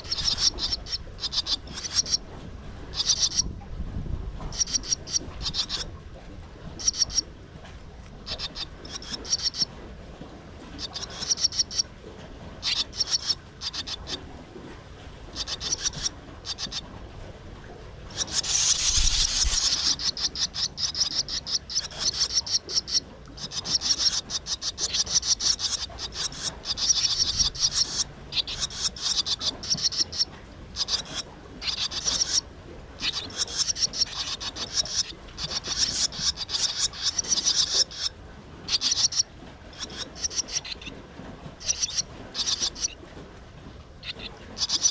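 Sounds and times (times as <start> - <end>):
chicks begging chatter: 0.0 - 2.2, 2.9 - 3.5, 4.4 - 5.9, 6.8 - 7.3, 8.2 - 9.7, 10.7 - 11.8, 12.6 - 14.2, 15.4 - 16.8, 18.1 - 32.4, 33.0 - 38.1, 38.7 - 41.0, 41.6 - 43.0, 44.0 - 44.9.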